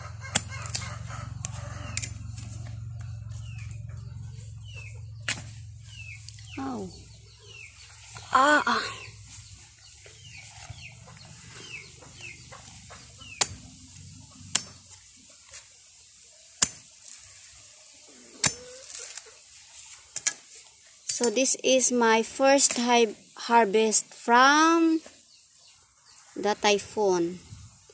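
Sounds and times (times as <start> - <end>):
low hum: 0.0 - 15.1
chickens clucking: 0.0 - 15.3, 17.7 - 21.4.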